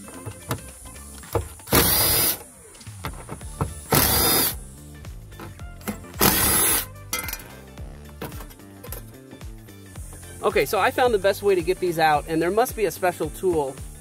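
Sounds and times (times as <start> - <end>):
cordless driver spinning: 1.6 - 2.4, 3.8 - 4.6, 6.2 - 6.9.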